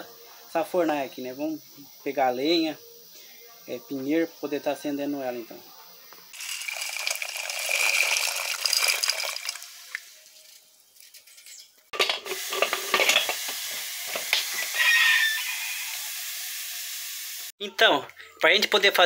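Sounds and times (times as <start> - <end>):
legumes poured into water: 6.4 - 10.1
metal pot and lid clattering: 11.9 - 13.4.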